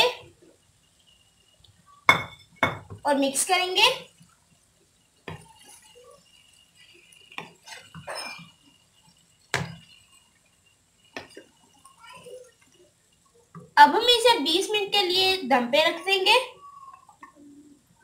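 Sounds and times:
spatula scraping vegetables in wok: 6.7 - 8.6.

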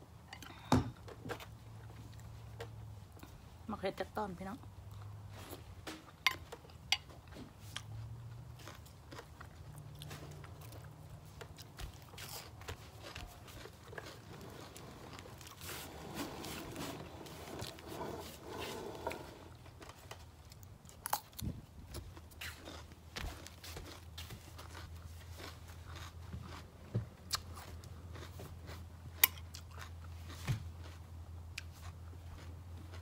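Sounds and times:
wet chewing and mouth clicks: 6.0 - 16.0, 17.6 - 33.0
crunching cucumber bites: 8.5 - 15.6, 20.5 - 33.0.

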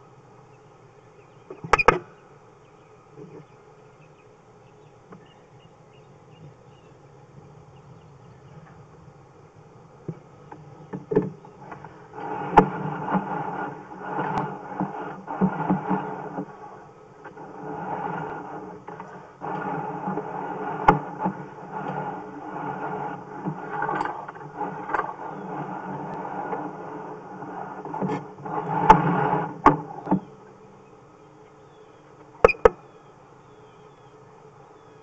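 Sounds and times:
cable scraping rattle: 10.5 - 30.3.

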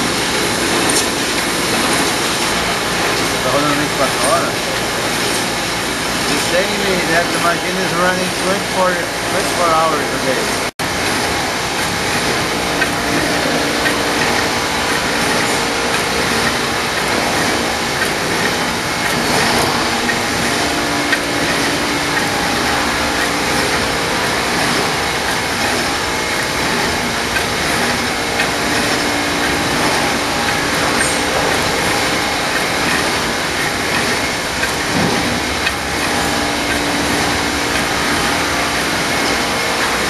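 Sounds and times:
stamping press running: 0.0 - 40.0.

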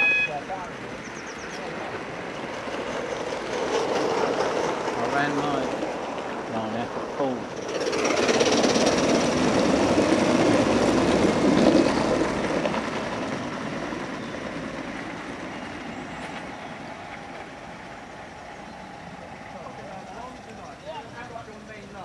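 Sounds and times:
model train wheels clattering: 2.4 - 6.5, 7.5 - 17.8.

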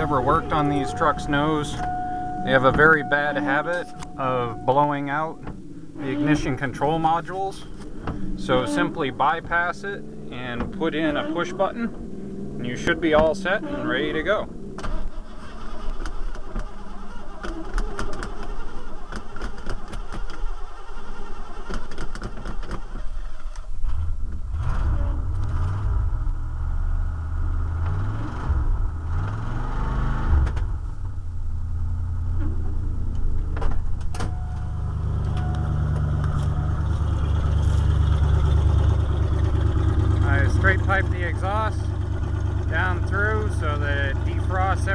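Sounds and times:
engine cranking revving and idling: 0.0 - 44.9.

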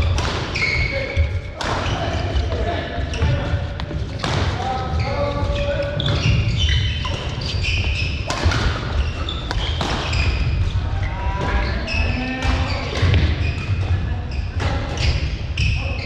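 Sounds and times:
shoes squeaking on court floor: 0.0 - 16.0
racket striking shuttlecock: 8.2 - 10.1.

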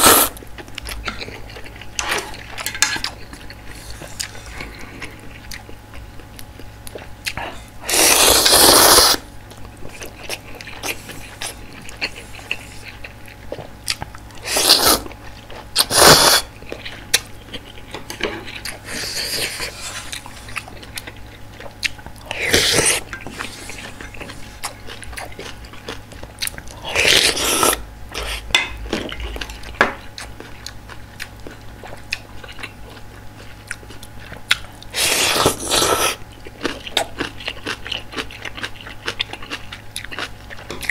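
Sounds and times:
noodle slurping: 0.0 - 0.4, 7.9 - 9.2, 14.4 - 15.1, 15.8 - 16.5, 22.2 - 24.6
wet chewing: 0.0 - 40.9.

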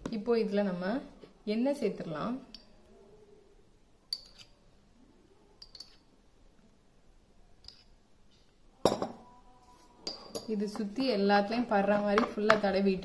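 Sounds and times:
steel spoon clinking bowl: 4.1 - 4.6, 5.6 - 6.1, 10.0 - 10.6.

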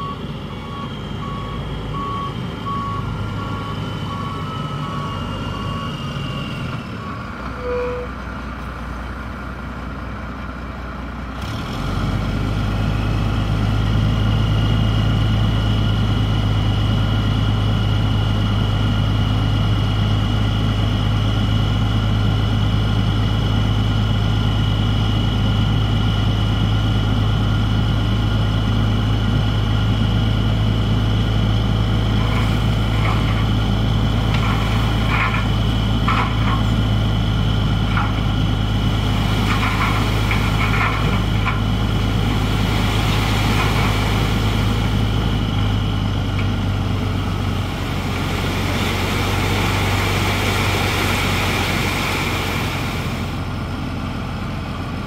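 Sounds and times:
reversing alarm beeping: 0.0 - 8.2
diesel truck engine: 0.0 - 55.0.

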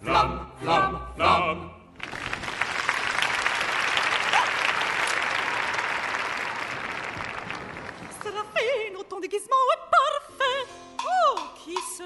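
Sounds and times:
audience applauding: 2.0 - 8.8.

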